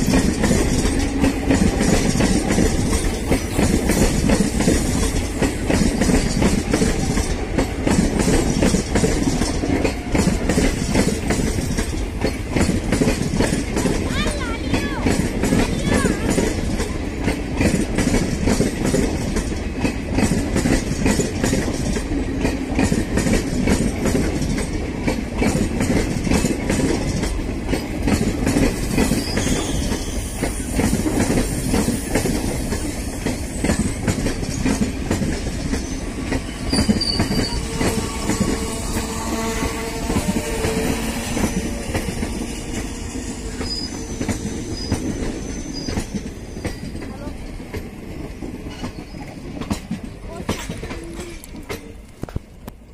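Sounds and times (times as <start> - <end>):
train coaches rumbling past: 0.0 - 52.9
wheels clicking over rail joints: 0.0 - 52.9
high wheel squeals: 28.9 - 30.8, 35.7 - 46.9.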